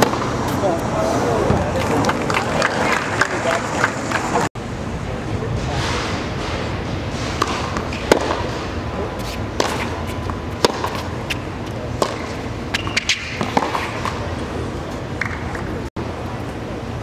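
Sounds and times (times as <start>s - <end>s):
crowd chatter: 0.0s - 6.9s
tennis ball hit by racket: 7.2s - 8.6s, 9.2s - 14.2s
tennis ball bouncing: 7.4s - 8.6s, 9.2s - 14.3s.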